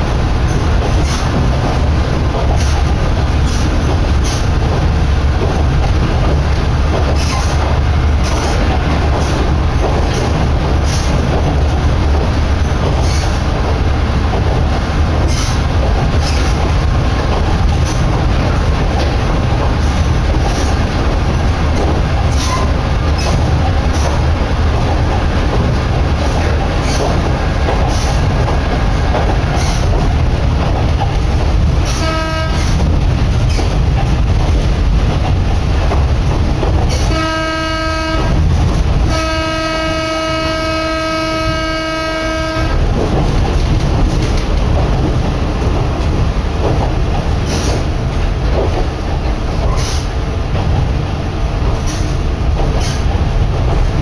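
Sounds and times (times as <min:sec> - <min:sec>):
wheels clicking over rail joints: 0:00.0 - 0:39.6, 0:41.5 - 0:54.0
train engine and wheels rumbling: 0:00.0 - 0:54.0
train horn: 0:31.9 - 0:32.8, 0:37.0 - 0:38.4, 0:39.0 - 0:42.8.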